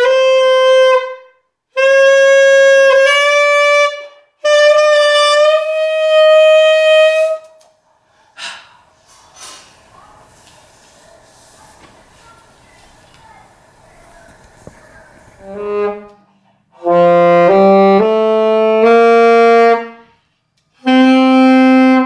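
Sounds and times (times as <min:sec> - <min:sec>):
alto saxophone long notes: 0:00.0 - 0:07.6, 0:15.4 - 0:22.0.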